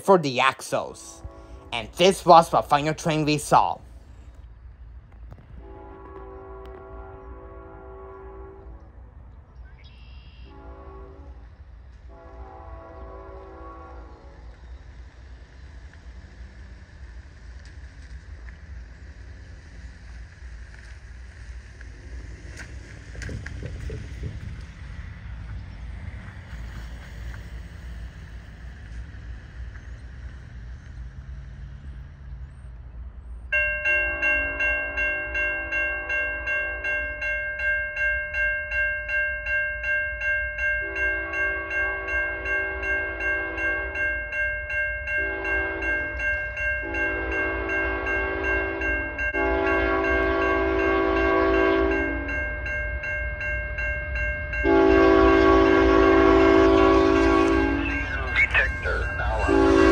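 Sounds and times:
train air horn blasts: 1.1 - 2.0, 5.6 - 9.1, 10.3 - 14.5, 40.8 - 44.0, 45.2 - 46.2, 46.8 - 52.4, 54.6 - 59.9
crossing bell ringing rapidly: 1.8 - 3.8, 33.5 - 59.9.

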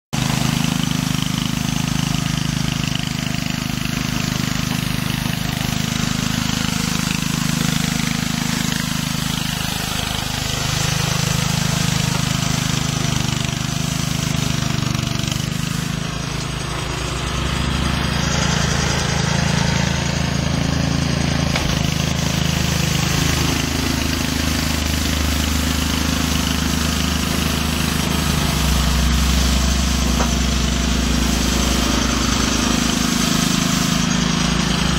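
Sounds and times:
small petrol engine running: 0.1 - 34.9.

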